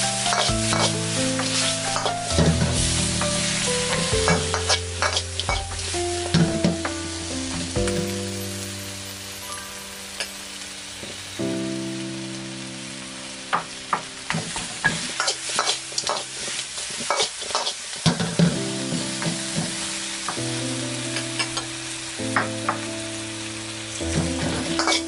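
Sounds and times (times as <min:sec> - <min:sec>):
spatula scraping wok: 0:00.0 - 0:11.5, 0:14.8 - 0:18.5, 0:24.2 - 0:25.0
chicken wings sizzling in wok: 0:00.0 - 0:25.0.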